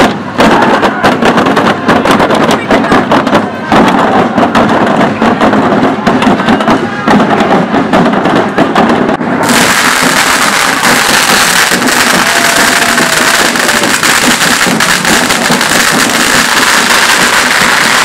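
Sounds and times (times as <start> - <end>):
fireworks cracks and bangs: 0.0 - 18.0
loud steady hiss: 9.3 - 18.0.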